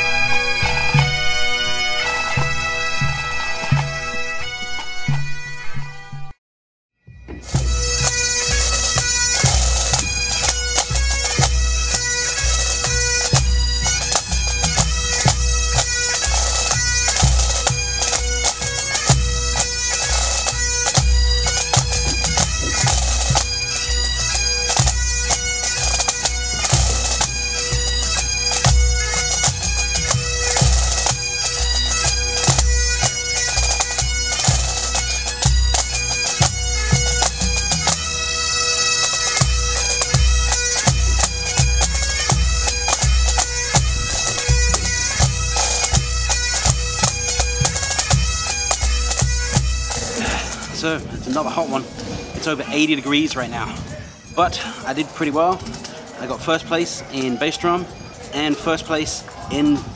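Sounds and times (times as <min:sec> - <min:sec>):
bass drum beating: 0:00.0 - 0:06.3, 0:07.1 - 0:11.7, 0:21.0 - 0:24.0, 0:40.1 - 0:48.5
bagpipe playing over drones: 0:00.0 - 0:06.4, 0:07.0 - 0:59.9.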